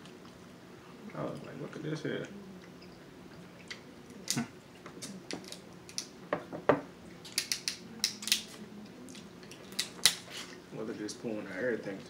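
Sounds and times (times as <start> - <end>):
crab shells cracking: 3.7 - 6.1, 7.2 - 8.6.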